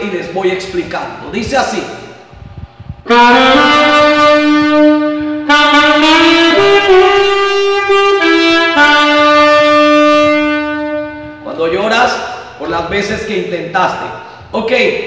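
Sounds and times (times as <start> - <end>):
alto saxophone melody: 3.0 - 11.6.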